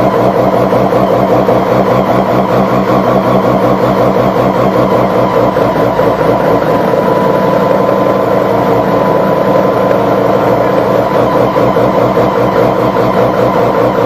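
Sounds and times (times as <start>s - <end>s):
rotary engine lumpy idle: 0.0s - 14.0s.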